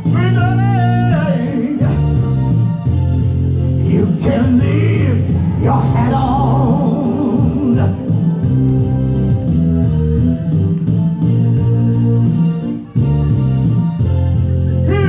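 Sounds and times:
man singing: 0.0 - 2.5, 3.8 - 8.4, 14.8 - 15.0
live band playing: 0.0 - 15.0.

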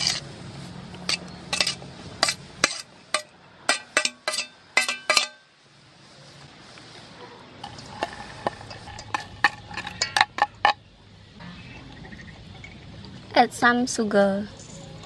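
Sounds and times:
metal tongs clinking on bowls: 1.1 - 5.4, 7.6 - 10.8.

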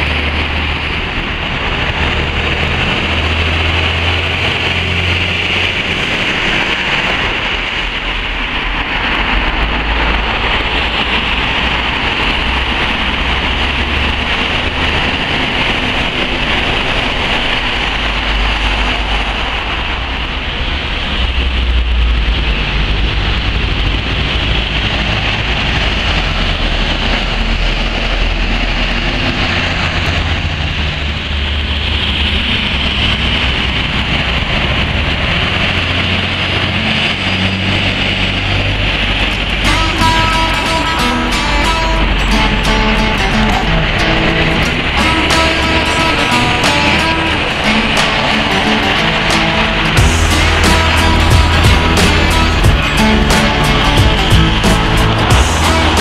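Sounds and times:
heavy diesel engines droning: 0.0 - 56.0
tyres hissing on wet road: 0.0 - 56.0.

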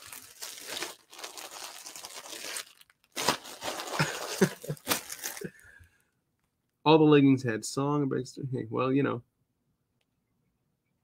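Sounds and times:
plastic bags crinkling: 0.0 - 5.6.

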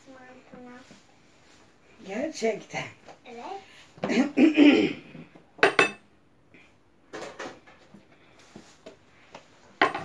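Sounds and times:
kitchen clatter: 5.6 - 6.0, 7.1 - 7.8, 9.8 - 10.0.

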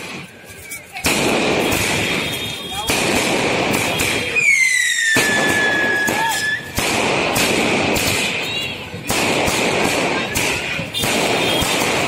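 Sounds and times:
firework bangs and crackling: 0.0 - 12.0
whistling firework: 1.5 - 8.8, 10.4 - 12.0.

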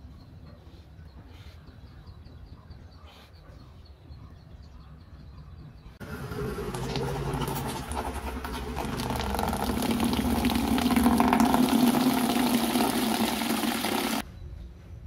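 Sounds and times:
tap water pouring into bucket: 6.0 - 14.2.

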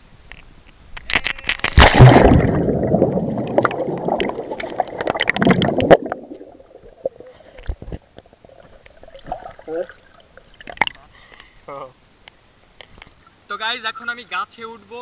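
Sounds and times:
body splashing into water: 1.6 - 7.3
underwater bubbling: 1.8 - 11.0.

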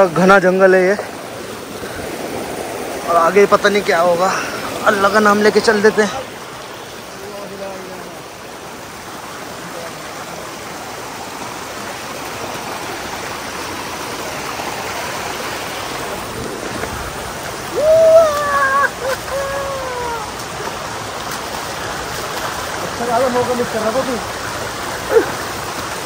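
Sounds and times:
flowing water rushing: 0.0 - 26.0
person calling out loudly: 17.7 - 20.3.

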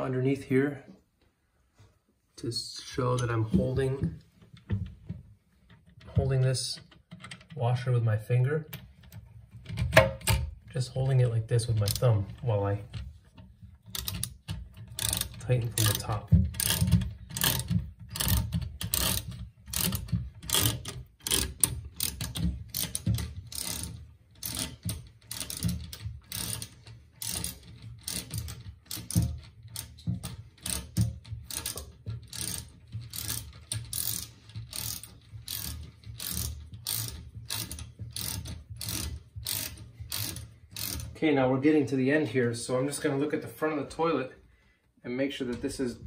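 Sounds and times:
ratchet wrench clicking: 13.9 - 41.1.

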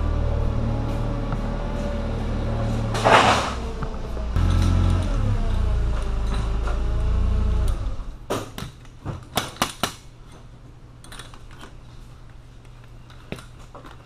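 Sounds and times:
low mechanical drone: 0.0 - 8.3.

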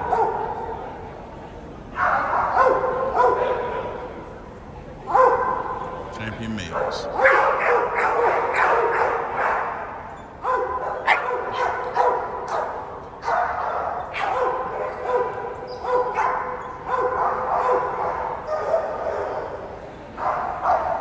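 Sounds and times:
dogs barking and yipping: 6.8 - 19.6.

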